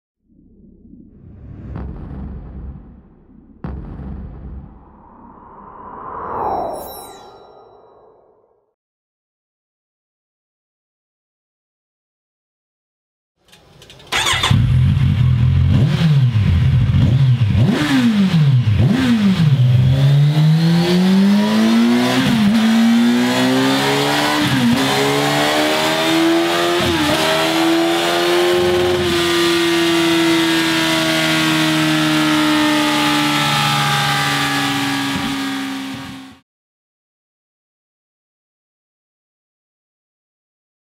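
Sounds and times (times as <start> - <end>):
motorcycle engine revving: 14.0 - 36.4.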